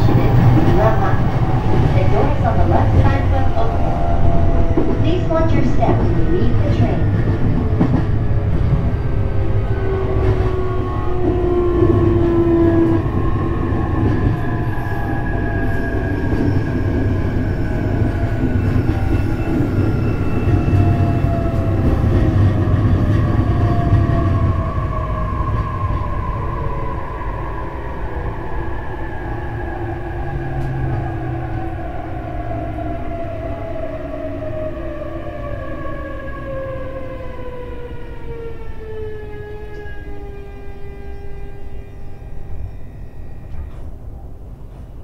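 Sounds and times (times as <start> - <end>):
train wheels rumbling on rails: 0.0 - 45.0.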